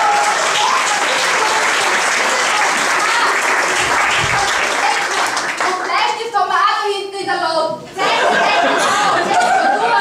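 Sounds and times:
audience applauding: 0.0 - 6.1
crowd voices: 7.9 - 10.0.

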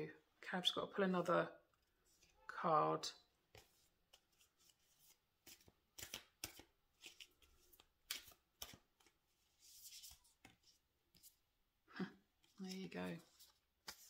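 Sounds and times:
cards being shuffled: 3.5 - 11.4, 12.4 - 14.0.

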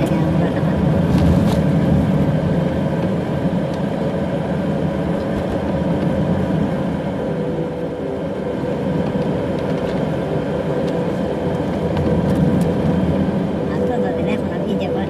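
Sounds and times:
car engine and tyre rumble: 0.0 - 15.0.

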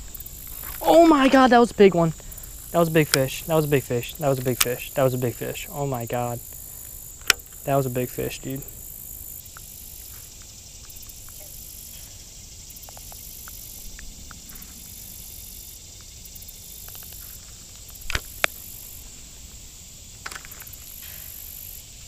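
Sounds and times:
insects chirring: 0.0 - 22.0
fishing tackle clicks: 2.8 - 5.3.

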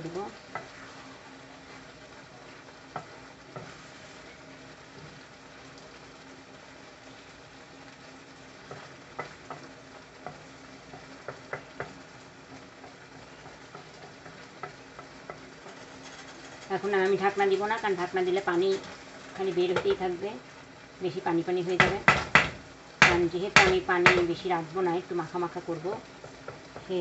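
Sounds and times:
curry sizzling in a frying pan: 0.0 - 27.0
spatula scraping a pan: 0.5 - 4.4, 12.9 - 17.3.

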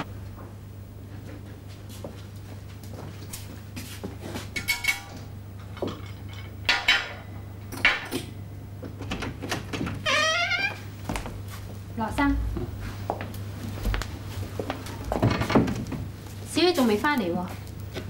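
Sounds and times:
steady low hum: 0.0 - 10.1, 10.7 - 18.0
dishes and cutlery clinking: 4.5 - 8.4.

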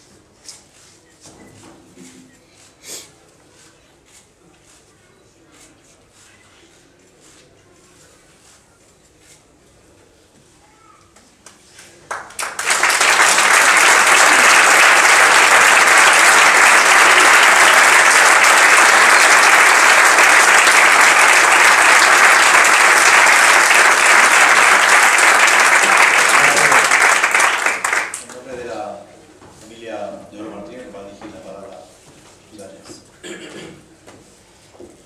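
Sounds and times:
audience applauding: 12.1 - 28.5.

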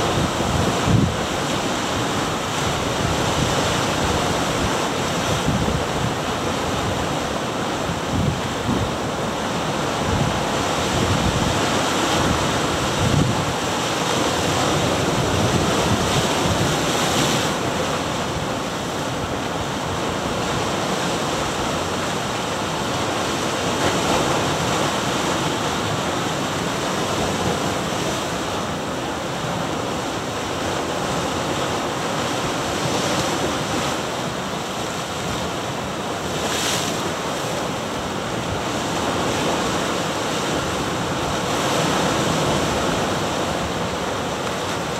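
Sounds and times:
wind buffeting microphone: 0.0 - 1.5, 7.8 - 17.5.

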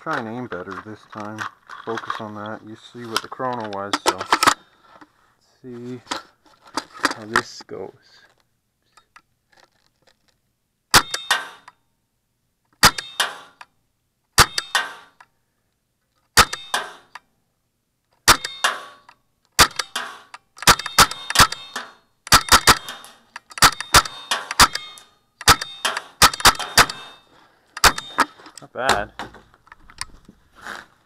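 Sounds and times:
paintball marker shots: 19.6 - 27.2, 27.8 - 28.2.

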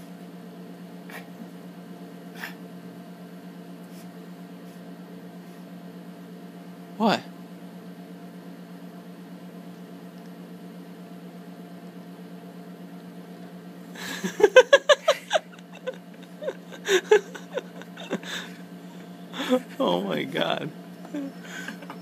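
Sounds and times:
person laughing: 14.0 - 19.8, 21.0 - 22.0.

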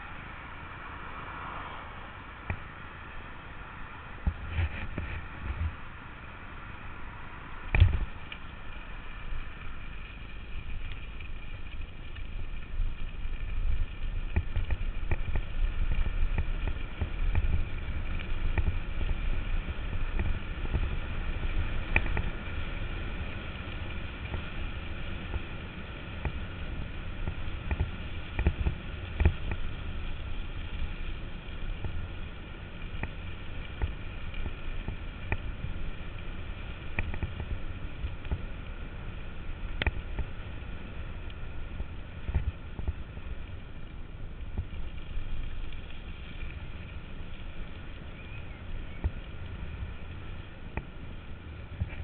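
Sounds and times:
bicycle rolling over gravel: 0.0 - 52.0
wind on microphone: 4.2 - 6.0.

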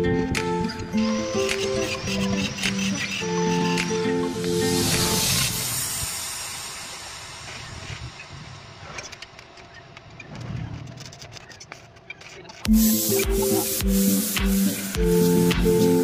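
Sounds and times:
background music: 0.0 - 6.4, 12.7 - 16.0.

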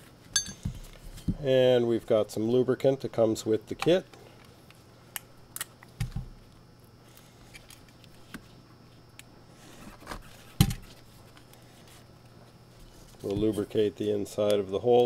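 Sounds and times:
tools clicking and tapping: 0.3 - 0.8.

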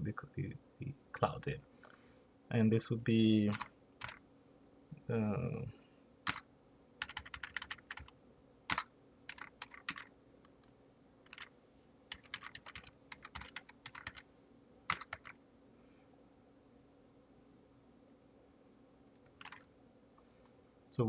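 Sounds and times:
computer keyboard typing: 3.5 - 4.2, 6.2 - 6.4, 7.0 - 11.5, 12.1 - 14.2, 14.9 - 15.4, 19.2 - 19.7.

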